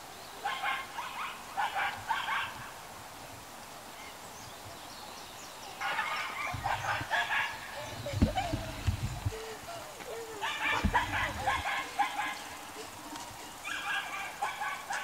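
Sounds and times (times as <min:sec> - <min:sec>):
moorhen clucking calls: 0:05.8 - 0:14.9.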